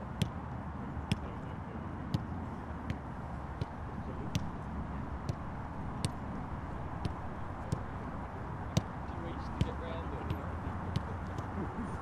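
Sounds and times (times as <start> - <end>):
football kicks: 3.6 - 4.6, 5.2 - 6.2, 7.0 - 8.0, 8.7 - 12.0.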